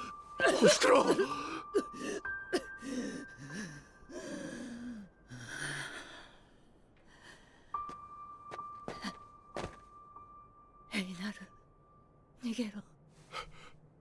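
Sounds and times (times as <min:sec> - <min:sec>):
quiet music with held tone: 0:00.0 - 0:14.0.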